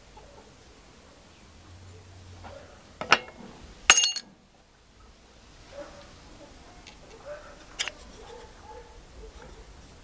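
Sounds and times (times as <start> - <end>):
brass blank clinking on metal: 3.9 - 4.2.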